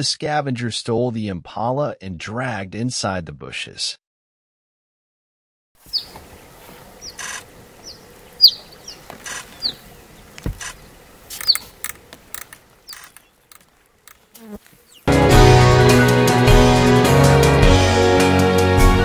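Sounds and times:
bird chirping: 5.8s - 15.1s
rustling: 5.8s - 15.1s
clicks: 9.0s - 14.2s.

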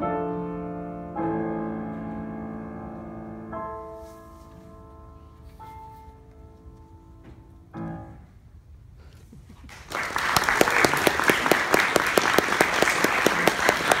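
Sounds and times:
applause: 9.7s - 14.0s.

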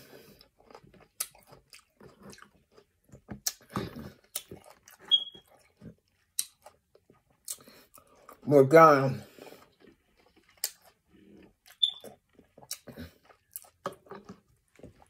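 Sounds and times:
chewing juicy fruit: 0.0s - 15.0s
brief high squeak: 5.1s - 5.4s, 11.8s - 12.1s.

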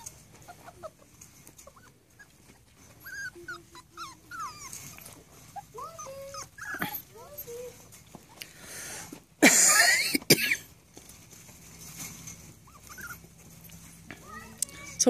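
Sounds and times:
puppies whimpering and whining: 0.0s - 8.4s, 12.3s - 15.0s.

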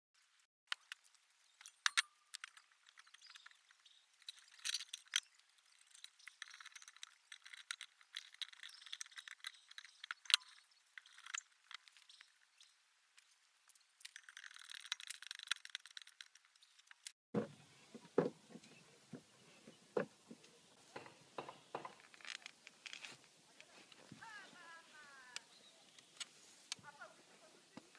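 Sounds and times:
steel parts clinking and rattling: 0.7s - 12.4s, 13.7s - 17.1s, 21.0s - 23.2s.

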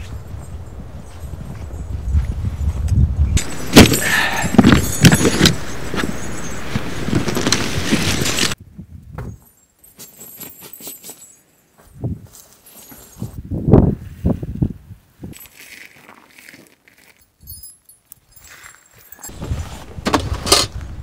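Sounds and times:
gear boxes clattering: 3.4s - 8.6s.

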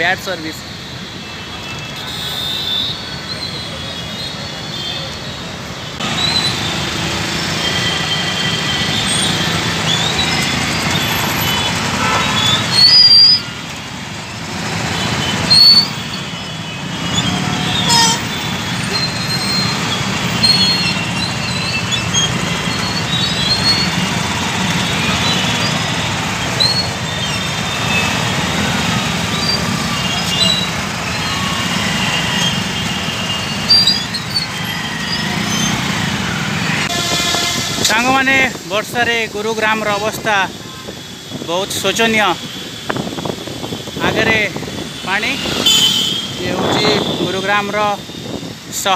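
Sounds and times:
motorbike and car engines: 5.9s - 48.9s
short horn toots: 17.3s - 18.4s, 36.8s - 37.9s.

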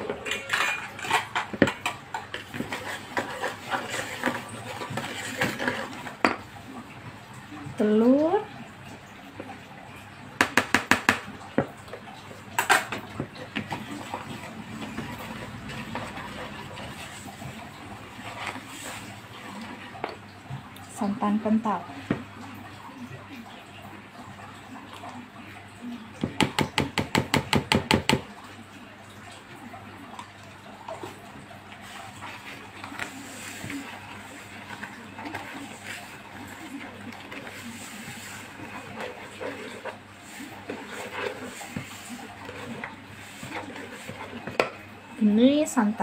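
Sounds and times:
plastic cup knocking on bowl: 10.4s - 11.7s
whisk tapping bowl: 10.4s - 11.7s, 31.8s - 44.8s
faint handling sounds: 31.0s - 44.9s.

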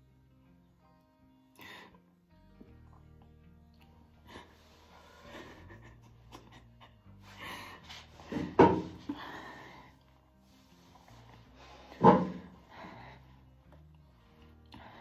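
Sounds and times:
soft background music: 0.0s - 15.0s
woman breathing hard: 7.1s - 13.6s.

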